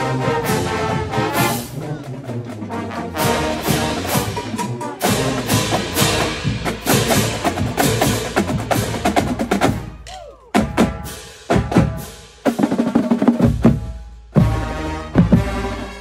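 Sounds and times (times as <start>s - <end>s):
marching drumline playing cadence: 0.0s - 16.0s.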